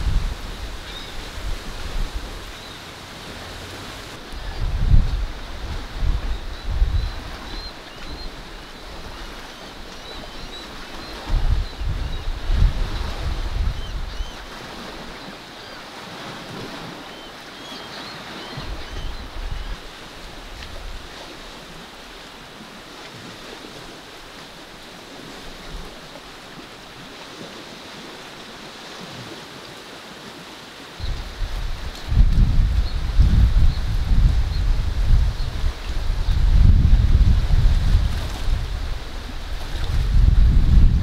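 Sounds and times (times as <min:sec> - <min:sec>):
wind buffeting microphone: 0:00.0 - 0:15.0, 0:31.0 - 0:41.0
small waves washing in: 0:00.0 - 0:41.0.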